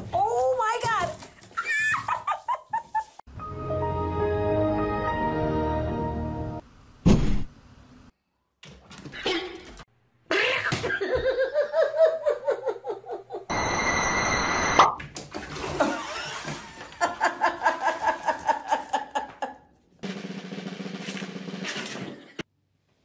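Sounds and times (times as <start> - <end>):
people laughing: 10.3 - 13.5, 16.8 - 19.6
water splashing in bathtub: 15.1 - 18.7.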